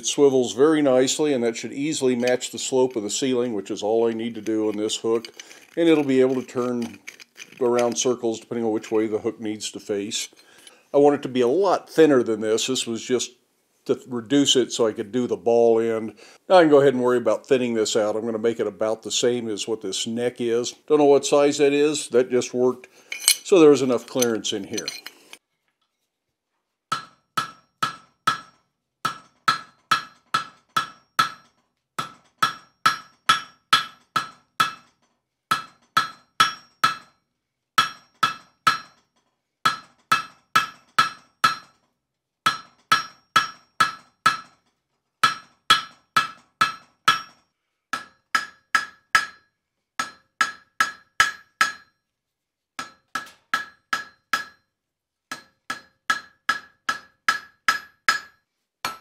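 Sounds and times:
hammer striking steel on anvil: 23.1 - 23.5, 26.9 - 34.9, 35.5 - 37.2, 37.8 - 41.8, 42.5 - 44.6, 45.2 - 52.0, 52.8 - 54.7, 55.3 - 59.0.

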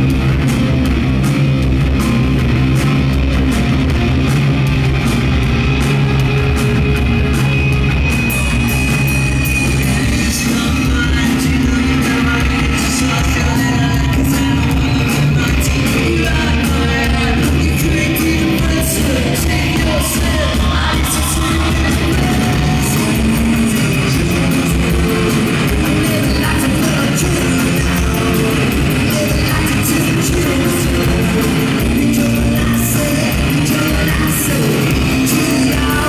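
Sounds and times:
drums and cymbals: 0.0 - 36.0
guitars: 0.0 - 36.0
person singing: 9.7 - 36.0.

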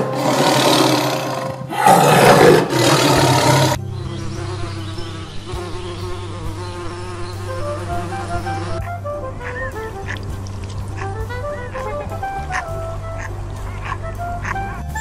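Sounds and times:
tiger roaring: 0.0 - 3.8
bee buzzing: 0.0 - 14.6.

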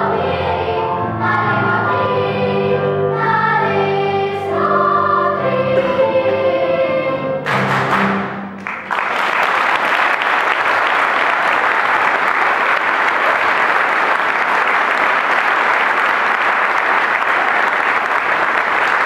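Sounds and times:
audience applauding: 7.4 - 19.0.

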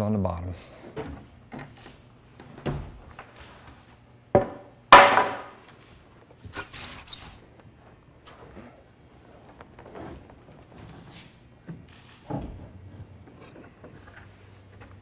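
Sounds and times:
wooden knocks and bumps: 4.3 - 5.5.

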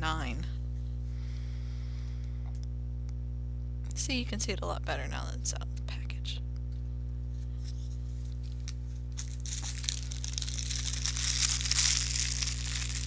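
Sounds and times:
electrical hum: 0.0 - 13.0
packaging rustling and crinkling: 7.6 - 13.0.

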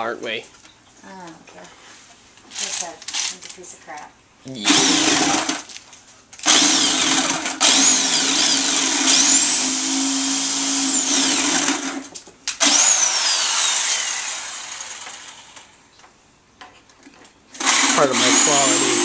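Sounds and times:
electric jigsaw sawing: 4.6 - 5.7, 6.4 - 15.7, 17.6 - 19.0.

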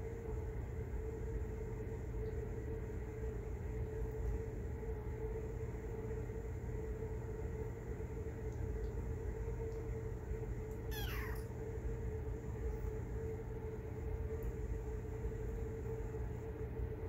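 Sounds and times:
low background hum: 0.0 - 17.0
kitten meowing: 10.9 - 11.5.

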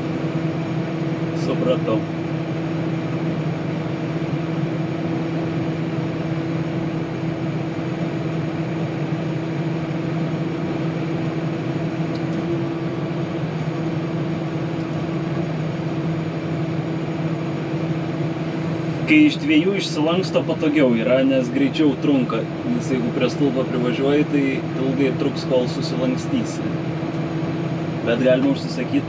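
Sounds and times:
tractor engine droning: 0.0 - 29.0.

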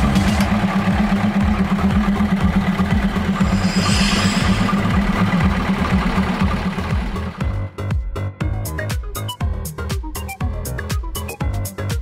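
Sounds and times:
diesel railcar engine humming: 0.0 - 7.9
brief higher sound: 3.3 - 6.0.

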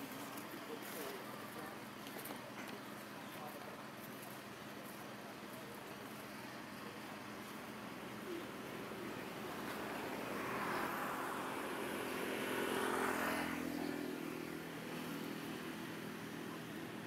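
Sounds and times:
motor vehicle passing: 8.2 - 16.7.

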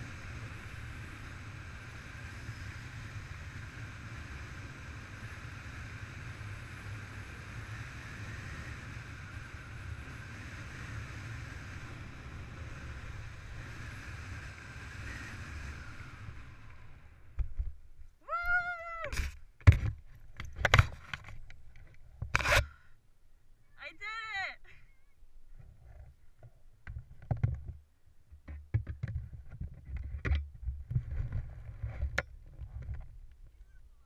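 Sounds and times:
wind rushing over camera: 0.0 - 22.6, 28.7 - 33.8
short high cry: 18.2 - 19.2
knocks and rustles of gear: 19.2 - 22.6.

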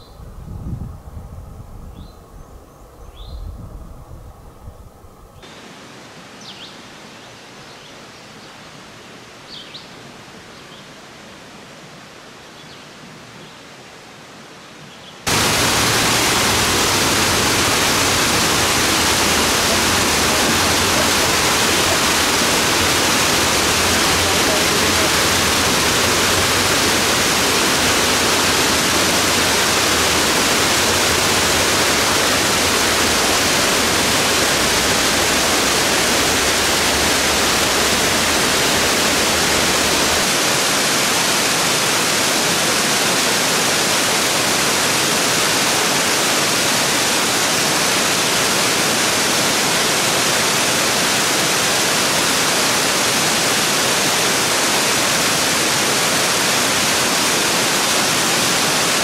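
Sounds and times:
waterfall rushing: 5.4 - 6.7, 15.3 - 59.0.

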